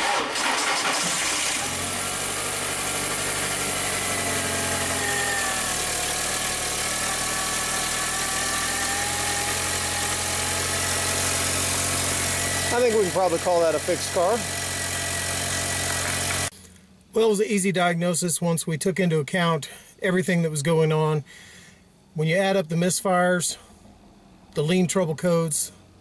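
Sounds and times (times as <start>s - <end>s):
car engine starting and idling: 0.0s - 16.5s.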